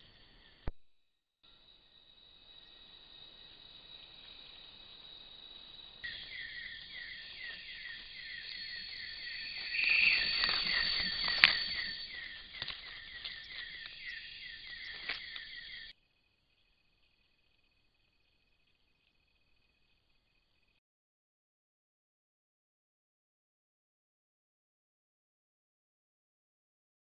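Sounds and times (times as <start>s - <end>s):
insects buzzing and chirping: 0.0s - 0.7s, 1.4s - 20.8s
animal rustling dry leaves: 6.2s - 15.6s.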